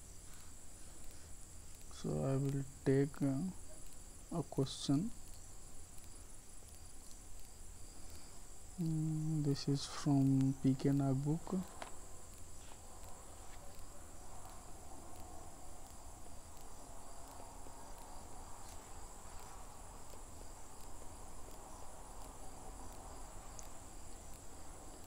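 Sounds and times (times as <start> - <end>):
crickets trilling: 0.0 - 25.0
low hum: 0.0 - 25.0
faint light ticks: 1.0 - 2.6, 5.2 - 9.0, 11.7 - 20.2, 22.2 - 25.0.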